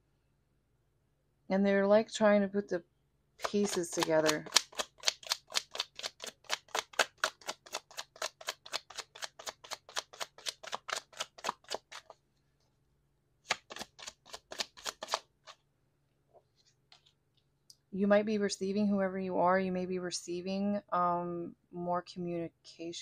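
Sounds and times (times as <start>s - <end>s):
cards being shuffled: 3.4s - 12.2s, 13.5s - 15.6s.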